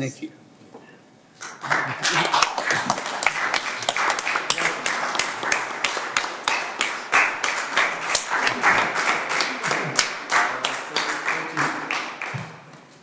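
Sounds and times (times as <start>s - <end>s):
small group applauding: 1.4s - 12.9s.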